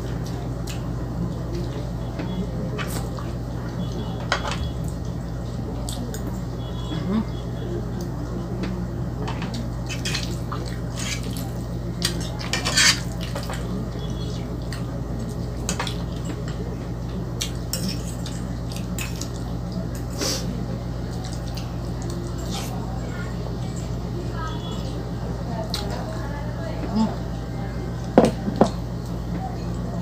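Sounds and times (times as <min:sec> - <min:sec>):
fork clinking and scraping a pan: 0:12.5 - 0:13.1.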